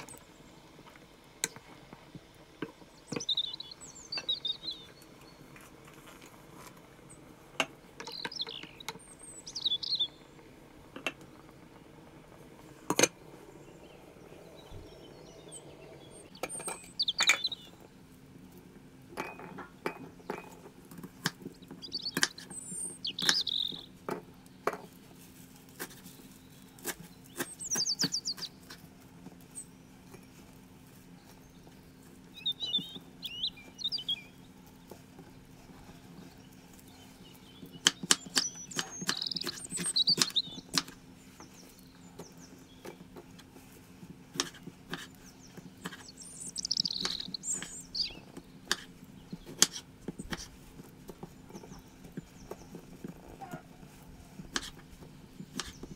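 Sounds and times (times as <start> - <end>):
small bird chirping: 2.8 - 5.7, 8.0 - 10.5, 13.2 - 17.9, 21.4 - 24.5, 26.0 - 28.8, 30.9 - 43.7, 44.4 - 50.6, 54.4 - 55.9.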